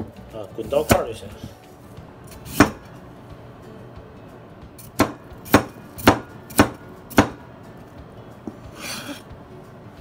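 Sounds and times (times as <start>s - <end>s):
cleaver chopping on cutting board: 0.8s - 1.1s, 2.5s - 2.8s, 4.8s - 7.4s.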